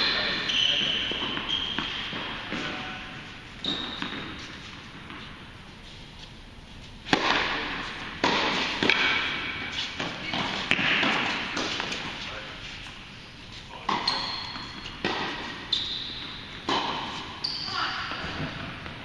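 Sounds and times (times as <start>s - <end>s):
racket hitting tennis ball: 0.2s - 5.3s, 7.0s - 12.2s, 13.8s - 17.4s
tennis ball bouncing: 0.8s - 5.4s, 7.0s - 12.2s, 13.8s - 17.4s.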